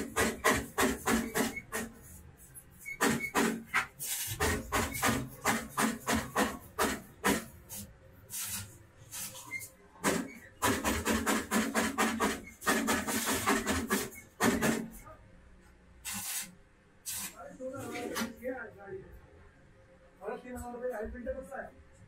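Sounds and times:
arc welding crackling: 0:06.8 - 0:09.7, 0:16.0 - 0:18.3
welding arc strikes: 0:08.3 - 0:09.3, 0:16.0 - 0:17.4.

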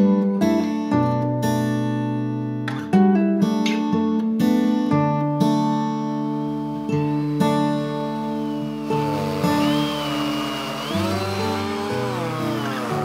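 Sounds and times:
acoustic guitar strumming: 0:05.8 - 0:13.0.

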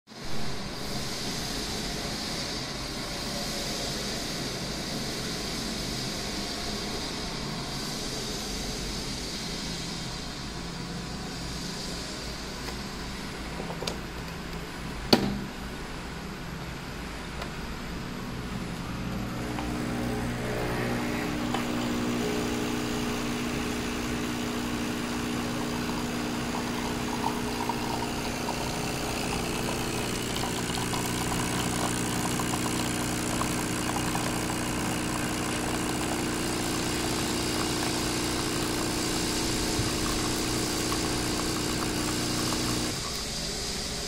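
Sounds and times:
coffee machine hissing: 0:00.4 - 0:13.6, 0:17.9 - 0:44.0
pump humming: 0:19.0 - 0:43.2.

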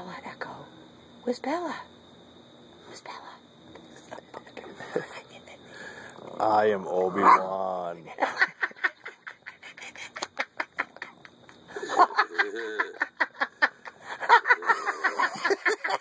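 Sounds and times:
person laughing: 0:08.3 - 0:16.0.

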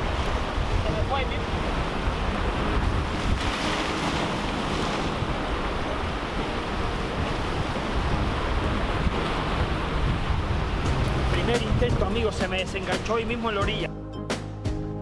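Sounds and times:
surf breaking over rocks: 0:00.0 - 0:13.8
wind rumble on microphone: 0:00.0 - 0:13.8.

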